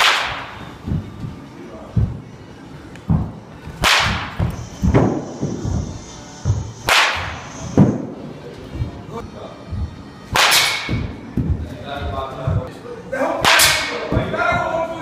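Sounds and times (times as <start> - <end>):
baseball bat hitting ball: 0.0 - 0.6, 3.1 - 5.8, 6.8 - 8.0, 10.3 - 11.5, 13.4 - 14.2.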